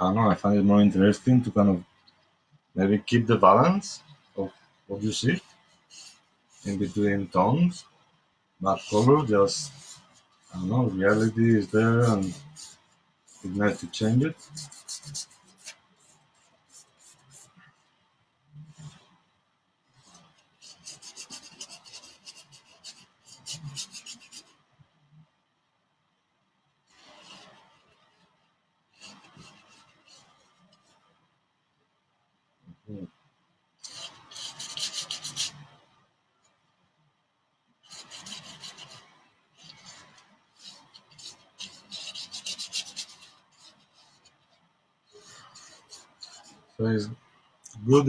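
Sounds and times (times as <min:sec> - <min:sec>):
paintbrush scrubbing on canvas: 0:03.1 - 0:08.0, 0:08.6 - 0:18.0, 0:18.6 - 0:19.2, 0:19.9 - 0:24.6, 0:26.9 - 0:31.2, 0:33.8 - 0:36.0, 0:37.8 - 0:48.0.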